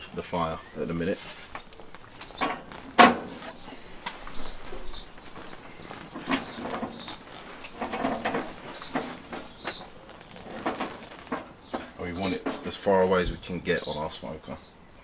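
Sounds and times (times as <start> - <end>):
small birds chirping: 0.0 - 15.0
ribs knocking on metal grill grate: 1.6 - 12.9.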